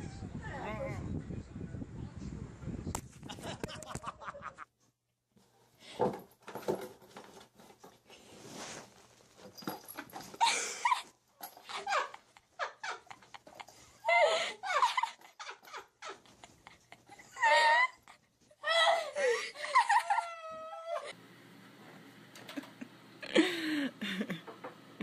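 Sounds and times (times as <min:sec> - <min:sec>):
rustling and scuffling: 0:05.4 - 0:14.0.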